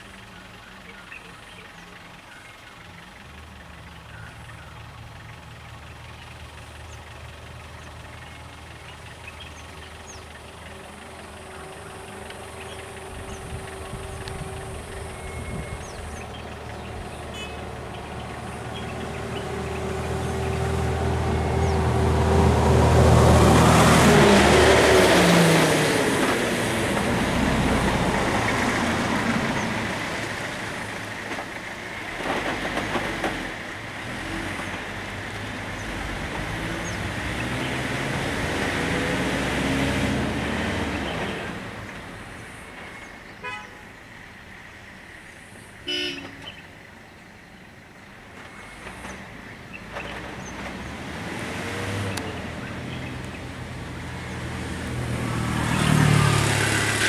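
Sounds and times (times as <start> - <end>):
lorry and car engines idling: 0.0 - 57.0
horn toot: 43.4 - 43.9, 45.8 - 46.5.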